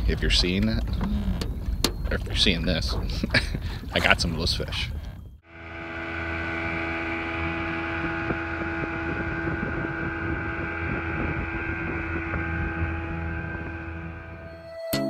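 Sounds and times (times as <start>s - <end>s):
wind on microphone: 0.0s - 14.5s
outboard motor running: 5.4s - 14.5s
water rushing past hull: 5.5s - 14.5s.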